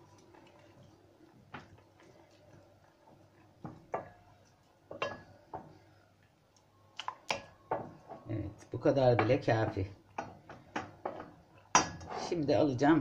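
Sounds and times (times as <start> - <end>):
wooden spoon tapping metal pot: 3.6 - 4.3, 4.9 - 5.8, 7.0 - 12.1.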